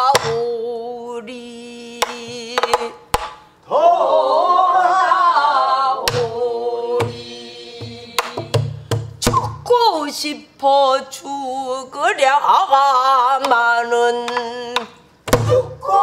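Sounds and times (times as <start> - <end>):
woman singing long held notes: 0.0 - 3.0, 9.7 - 16.0.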